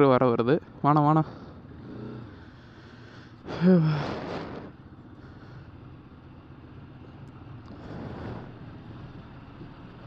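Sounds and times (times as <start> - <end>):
road traffic noise: 0.0 - 10.0.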